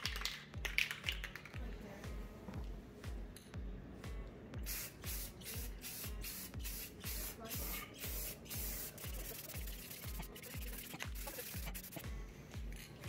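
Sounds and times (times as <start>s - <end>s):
background music with steady beat: 0.0s - 13.0s
aerosol spray can hissing: 4.6s - 12.1s.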